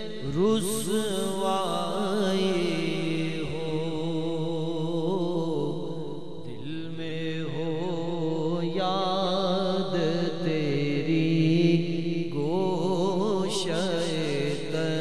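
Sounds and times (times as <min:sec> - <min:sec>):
man singing with vibrato: 0:00.0 - 0:15.0.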